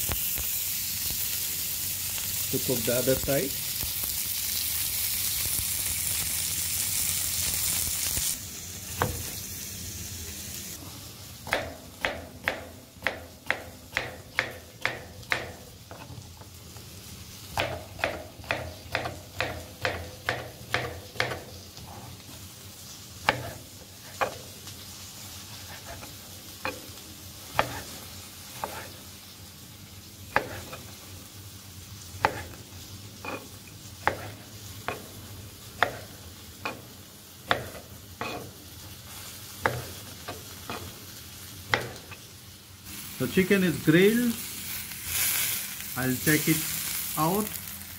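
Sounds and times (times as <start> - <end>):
chicken sizzling on grill pan: 0.0 - 47.9
knife chopping on plastic board: 11.5 - 15.6, 17.6 - 21.4, 23.2 - 23.6, 27.5 - 27.9, 30.3 - 30.8, 32.2 - 32.6, 34.0 - 35.2, 35.8 - 36.1, 37.5 - 38.4, 39.6 - 40.9, 41.7 - 42.1.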